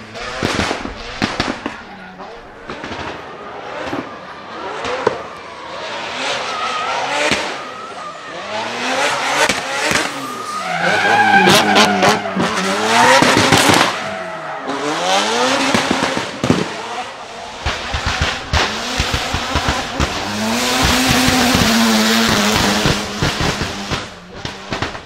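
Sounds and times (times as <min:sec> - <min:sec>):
exhaust cracks and pops: 0:00.2 - 0:01.9, 0:17.5 - 0:25.0
rotary engine revving: 0:08.2 - 0:25.0.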